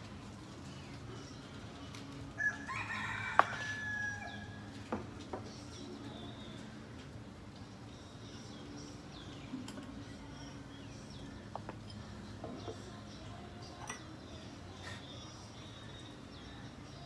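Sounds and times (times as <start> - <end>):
small birds chirping: 5.4 - 17.0.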